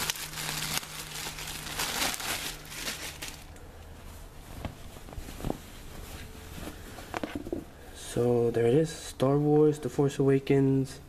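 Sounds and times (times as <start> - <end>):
plastic bag crinkling: 0.0 - 3.6.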